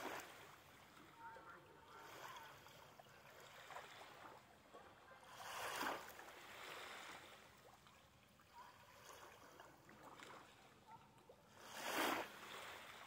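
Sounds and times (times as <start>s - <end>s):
small waves lapping on shore: 0.0s - 13.0s.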